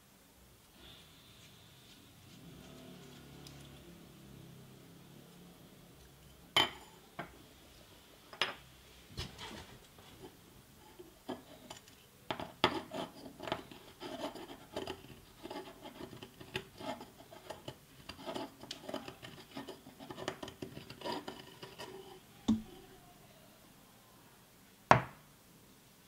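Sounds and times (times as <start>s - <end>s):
reamer scraping copper tube: 12.4s - 22.3s
knock: 24.9s - 25.2s.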